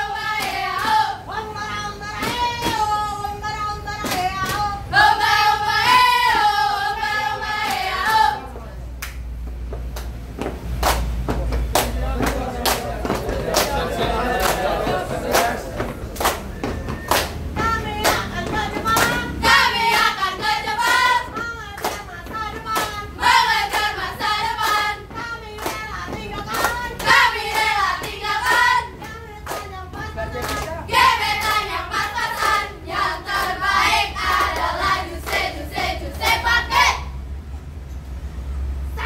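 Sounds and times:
women chanting a cheer: 0.0 - 8.8, 17.6 - 30.2, 30.9 - 37.2
hand claps: 0.3 - 1.0, 2.2 - 2.9, 9.0 - 19.2, 19.9 - 23.0, 24.6 - 30.7.

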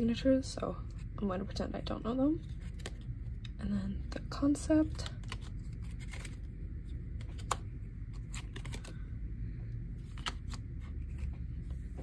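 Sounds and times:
cards clicking and tapping: 2.6 - 3.6, 5.0 - 6.4, 7.2 - 9.0, 10.0 - 12.0.

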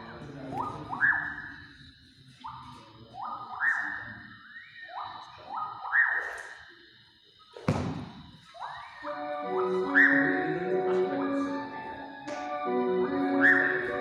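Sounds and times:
music with sliding whistle lead: 0.9 - 1.6, 3.2 - 6.6, 8.5 - 14.0
sharp thud: 7.6 - 8.3.

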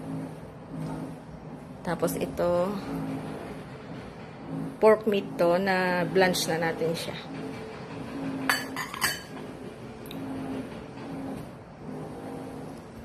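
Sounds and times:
ceramic dishes clinking: 8.5 - 9.3.

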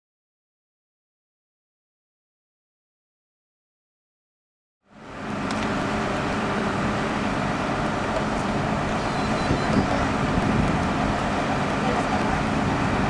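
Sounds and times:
engine running steadily: 4.8 - 13.0.

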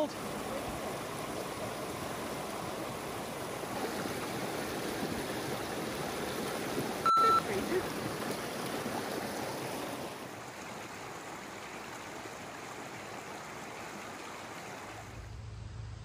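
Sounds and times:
water rushing over rocks: 0.0 - 15.3
low hum: 15.0 - 16.0.

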